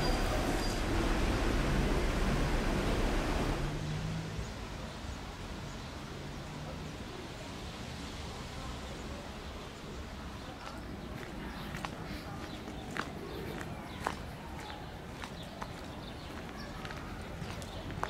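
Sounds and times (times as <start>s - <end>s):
loud rushing noise: 0.0s - 4.8s
distant traffic: 0.0s - 18.0s
faint footsteps: 10.6s - 18.0s.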